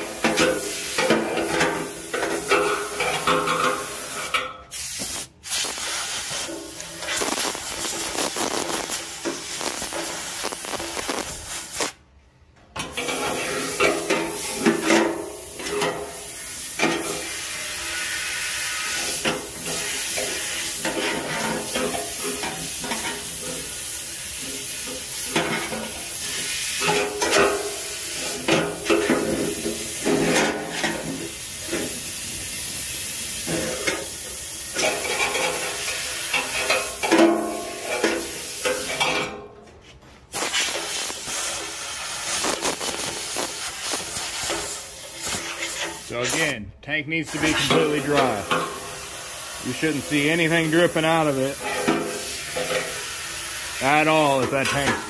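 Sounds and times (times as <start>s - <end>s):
compressed air hissing: 0.0s - 12.0s, 13.0s - 39.0s, 40.3s - 46.6s, 47.3s - 54.6s
spluttering crackle: 7.0s - 12.0s, 40.4s - 44.6s.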